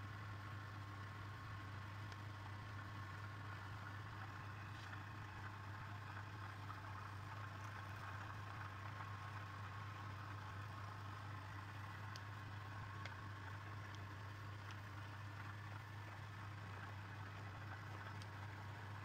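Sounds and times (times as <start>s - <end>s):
faint high motor whine: 0.0s - 19.0s.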